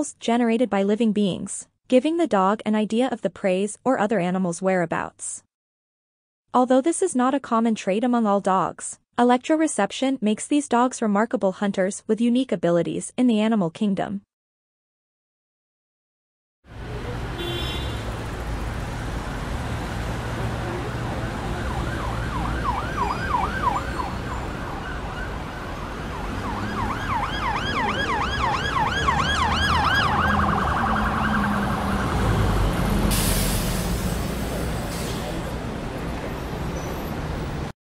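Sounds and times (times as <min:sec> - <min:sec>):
siren yelping: 0:20.7 - 0:32.8.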